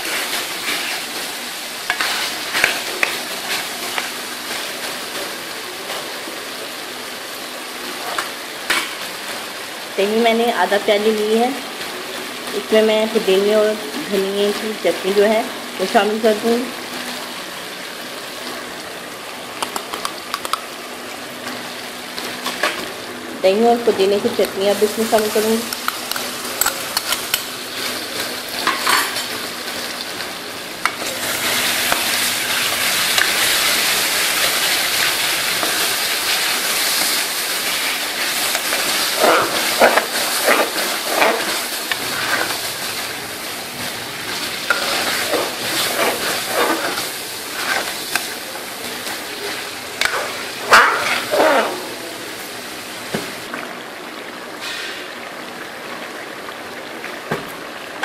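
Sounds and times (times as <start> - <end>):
curry sizzling in a wok: 0.0 - 58.0
metal spoon scraping a pan: 38.5 - 42.6, 44.6 - 48.4, 50.0 - 52.0.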